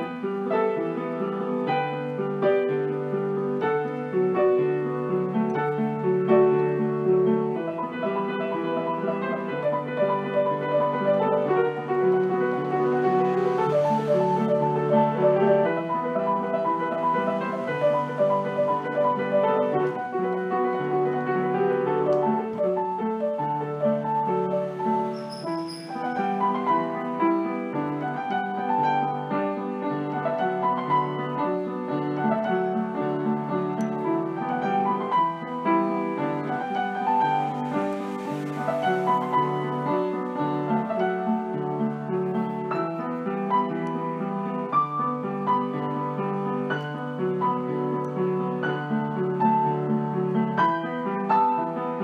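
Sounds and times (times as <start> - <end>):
piano music: 0.0 - 52.0.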